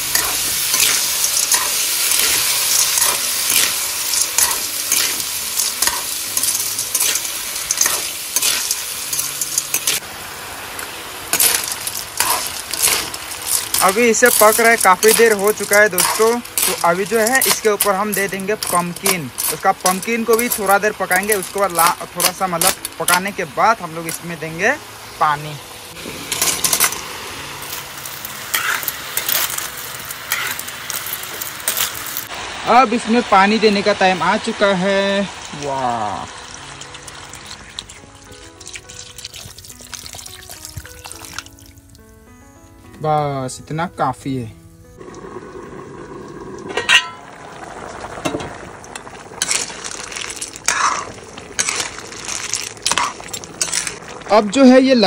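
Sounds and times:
metal spoon scraping pan: 0.0 - 10.0, 11.3 - 20.7, 28.5 - 29.7, 30.3 - 31.0, 46.7 - 47.2, 50.6 - 54.0
low sizzle: 0.0 - 55.0
curry bubbling: 35.4 - 42.0, 45.0 - 55.0
metal lid clanking: 46.7 - 47.3.

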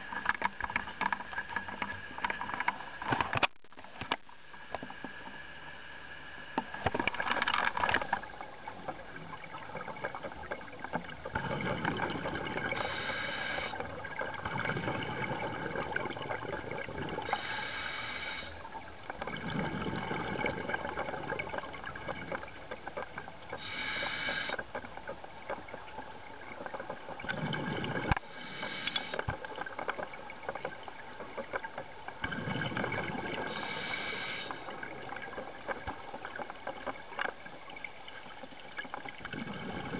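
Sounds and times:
exhaled bubbles underwater: 8.0 - 39.9
breathing through a regulator: 11.4 - 16.0, 17.0 - 20.7, 23.5 - 24.7, 27.5 - 29.4, 32.2 - 34.9.

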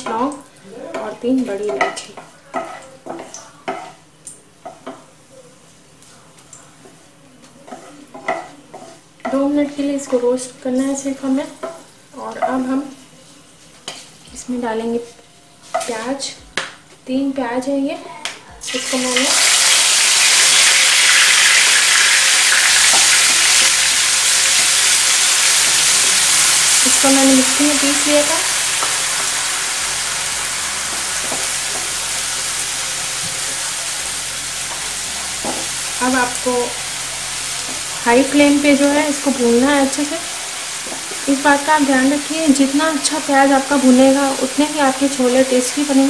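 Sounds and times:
faint oil sizzle: 0.0 - 16.4, 17.9 - 46.0
spatula scraping a frying pan: 7.7 - 9.1.

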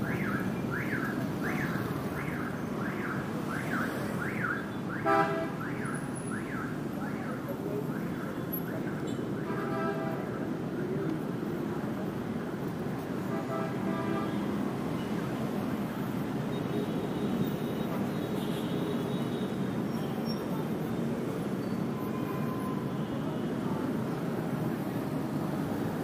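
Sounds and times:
city street traffic: 0.0 - 26.0
car horn toot: 5.0 - 5.6.

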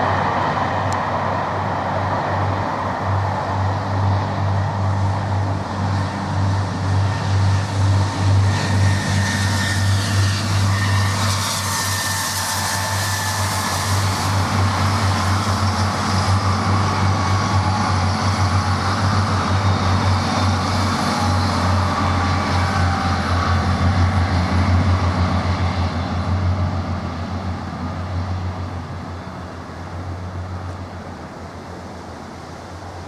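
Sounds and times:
rail and wheel noise: 0.0 - 33.0
train rumbling past: 0.0 - 33.0.

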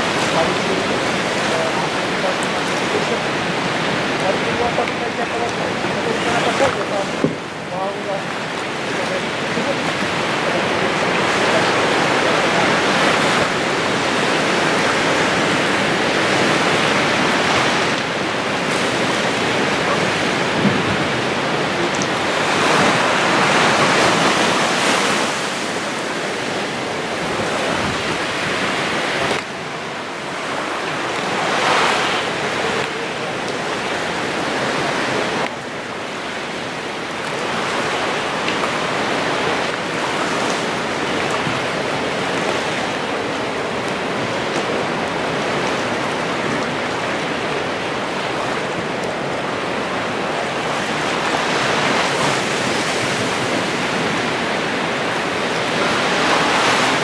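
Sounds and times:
small waves washing onto sand: 0.0 - 57.0.

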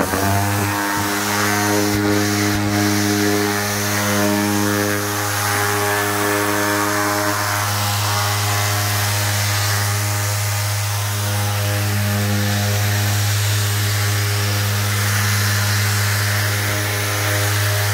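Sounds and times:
orbital sander motor hum: 0.0 - 17.9.

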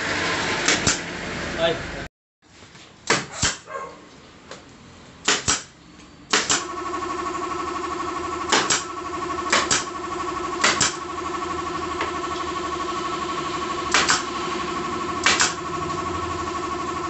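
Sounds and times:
nail gun firing: 0.6 - 1.0, 3.0 - 3.7, 5.2 - 5.7, 6.3 - 7.1, 8.3 - 11.3, 13.8 - 14.3, 15.1 - 16.0
motor humming: 6.6 - 17.0.

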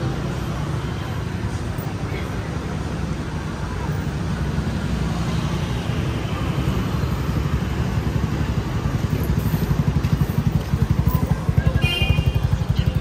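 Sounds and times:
street traffic: 0.0 - 13.0
vehicle engine running: 6.9 - 13.0.

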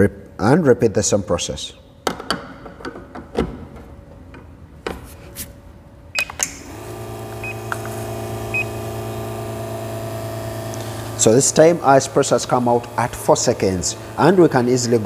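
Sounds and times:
portafilter clicking into espresso machine: 6.2 - 8.1
espresso machine pump humming: 6.4 - 15.0.

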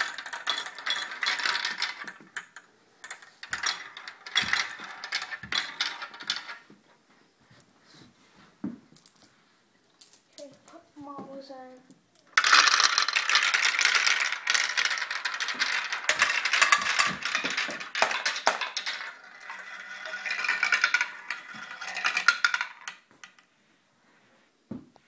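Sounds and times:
marbles clattering down a run: 0.0 - 6.6, 12.3 - 23.4.

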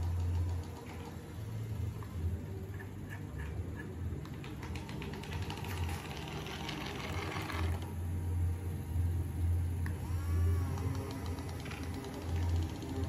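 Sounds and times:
fast clicking rattle: 0.0 - 1.6, 2.8 - 7.9, 10.6 - 13.0
steady low hum: 0.0 - 13.0
small electric motor whirring: 3.7 - 13.0.

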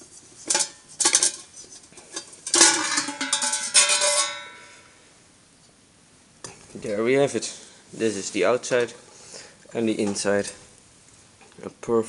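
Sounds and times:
metal scraping and knocking: 0.0 - 4.6
steel clanks ringing: 2.5 - 4.8.

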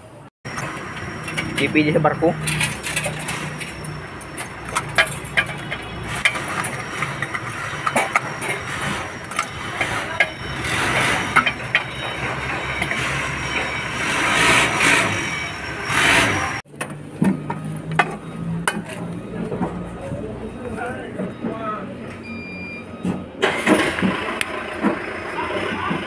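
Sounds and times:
hand tools clinking: 0.6 - 13.0.

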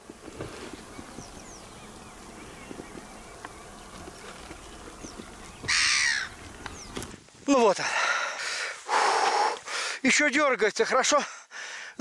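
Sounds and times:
footsteps in boggy marsh: 0.0 - 10.3
harsh bird call: 4.7 - 7.0.

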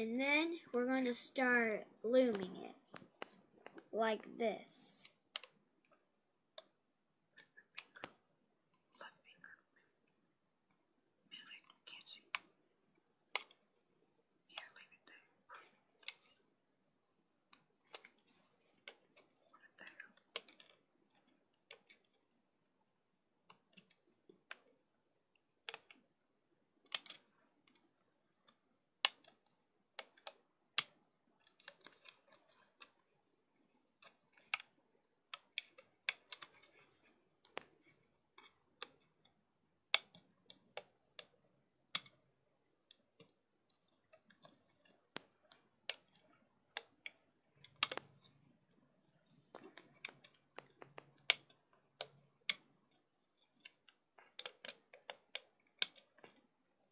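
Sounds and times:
plastic hook clicking on loom pegs: 26.8 - 27.9, 28.5 - 33.0, 45.2 - 48.2, 53.4 - 56.5.

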